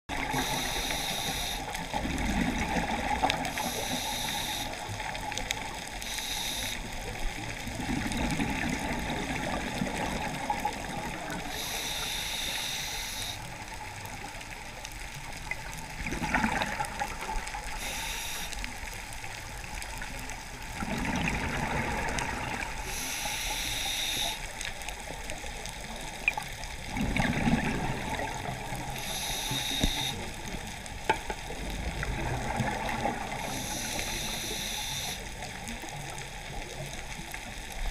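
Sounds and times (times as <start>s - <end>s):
bubbling gurgle underwater: 0.1s - 6.2s, 6.8s - 12.2s, 12.9s - 37.9s
diver breathing through regulator: 0.2s - 1.7s, 3.5s - 4.8s, 6.0s - 7.0s, 11.5s - 13.4s, 17.8s - 18.6s, 22.8s - 24.5s, 28.9s - 30.3s, 33.3s - 35.3s.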